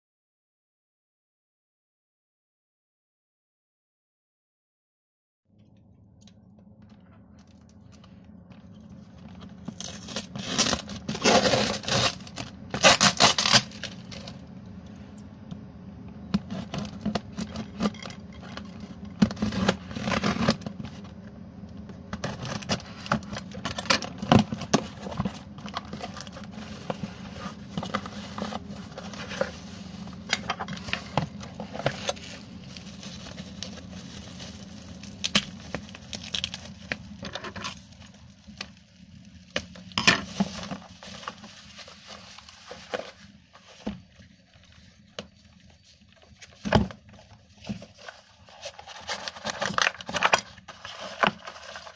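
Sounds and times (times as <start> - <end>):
bubble wrap crinkling: 7.0 - 14.5, 22.2 - 51.9
cardboard scraping: 8.9 - 14.4, 16.3 - 21.2, 22.0 - 38.1, 39.6 - 45.1, 45.7 - 51.9
packing tape tearing: 9.6 - 14.4, 16.5 - 21.0, 30.4 - 38.2, 48.0 - 51.9.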